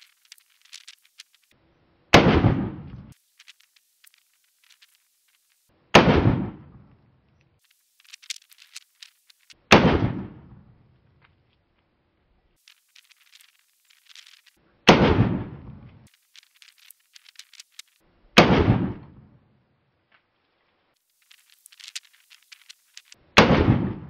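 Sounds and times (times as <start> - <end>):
pistol shots: 2.1 - 2.9, 5.9 - 6.7, 9.7 - 10.5, 14.9 - 15.7, 18.4 - 19.2, 23.4 - 24.0.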